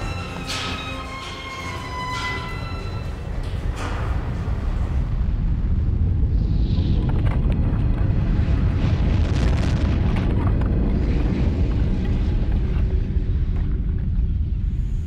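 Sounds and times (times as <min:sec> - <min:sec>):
deep rumbling roar: 0:02.8 - 0:14.7.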